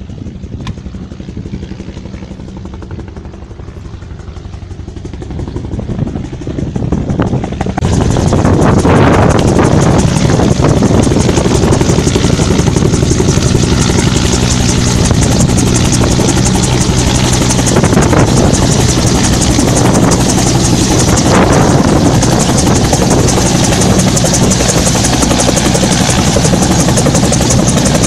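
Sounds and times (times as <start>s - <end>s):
helicopter engine drone: 0.0s - 28.0s
helicopter rotor chopping: 0.0s - 28.0s.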